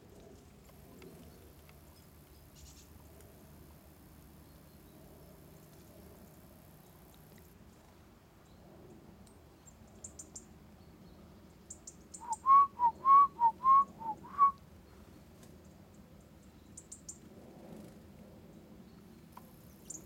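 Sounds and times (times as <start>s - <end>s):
faint high bird calls: 11.7s - 14.6s
person whistling short notes: 12.2s - 14.6s.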